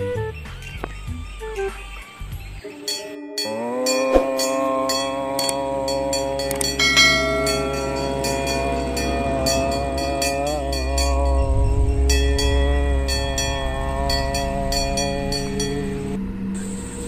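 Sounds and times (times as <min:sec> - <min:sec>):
horn-like sustained chord: 0:02.7 - 0:16.3.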